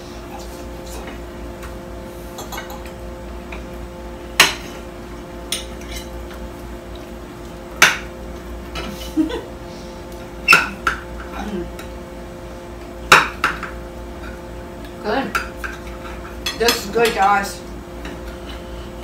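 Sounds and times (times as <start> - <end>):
steady low hum: 0.0 - 19.0
cutlery clinking on plates: 2.4 - 2.9.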